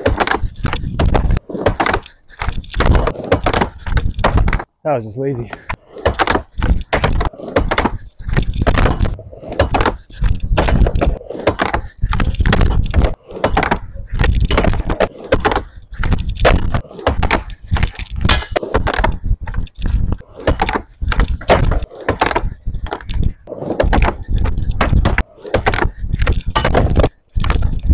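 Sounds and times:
skateboard wheels rolling on wood: 0.0s - 4.7s, 5.4s - 27.9s
skateboard clacking on ramp: 20.3s - 27.8s.

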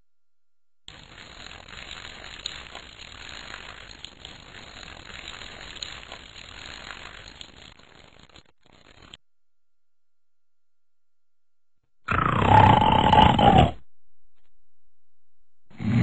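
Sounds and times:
water sprinkling from watering can: 0.9s - 9.2s.

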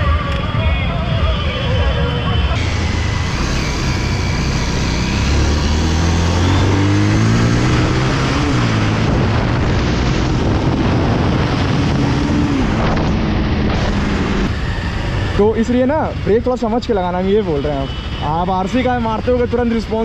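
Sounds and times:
motorcycle engine accelerating: 2.6s - 15.4s
wind on microphone: 7.7s - 15.2s.

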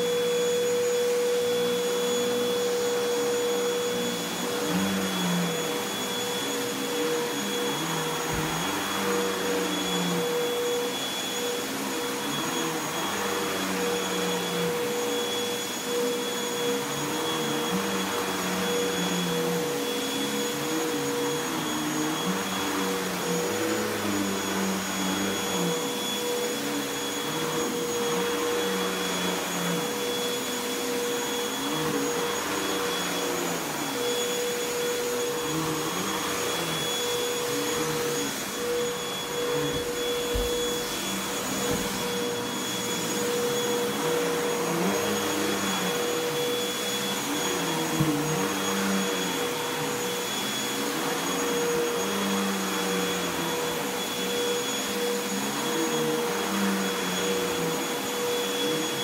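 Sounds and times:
vacuum cleaner running on carpet: 0.0s - 59.0s.

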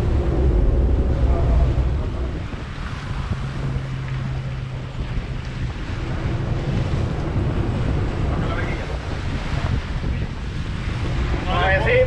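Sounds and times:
boat engines humming: 0.0s - 12.0s
churning wake rushing: 0.0s - 12.0s
wind buffeting microphone: 0.0s - 12.0s.

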